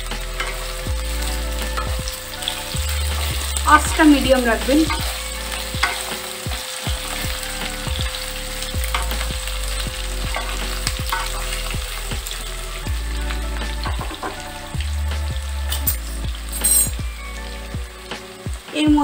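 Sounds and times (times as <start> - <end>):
vegetables sizzling in oil: 0.0 - 19.0
spatula scraping a pan: 0.1 - 12.6.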